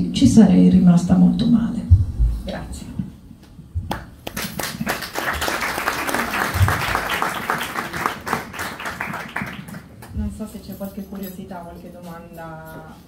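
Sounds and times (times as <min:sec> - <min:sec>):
audience applauding: 0:04.2 - 0:10.1.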